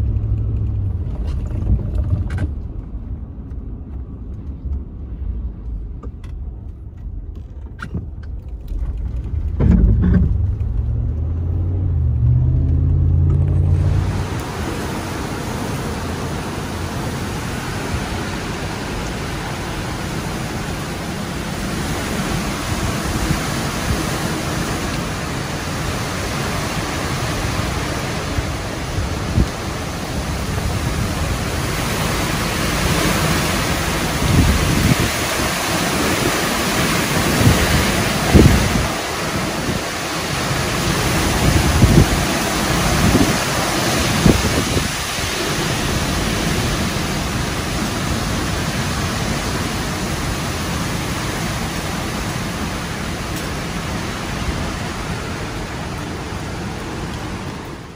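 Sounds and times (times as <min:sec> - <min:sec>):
driving rain: 0:00.0 - 0:57.9
wind gusts buffeting microphone: 0:13.8 - 0:57.9.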